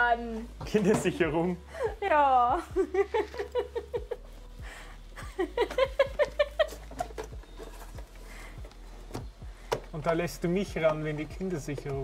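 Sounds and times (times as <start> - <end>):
person laughing: 1.8 - 4.4, 5.2 - 7.1
handling clicks and taps: 8.6 - 12.0.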